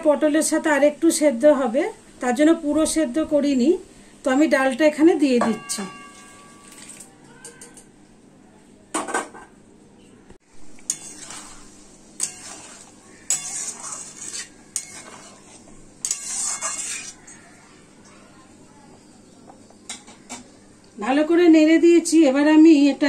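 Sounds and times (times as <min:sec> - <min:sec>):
metal spatula scraping pan: 0:10.9 - 0:17.4.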